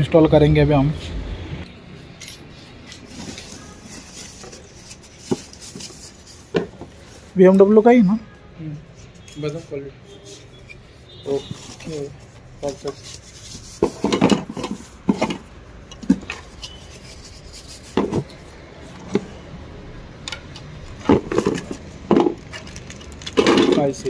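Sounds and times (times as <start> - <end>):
foam and straw rustling: 2.6 - 8.0, 9.0 - 19.1, 21.0 - 24.0
cardboard scraping: 11.3 - 19.3
plastic parts knocking: 13.7 - 16.7, 17.9 - 18.4, 20.4 - 24.0.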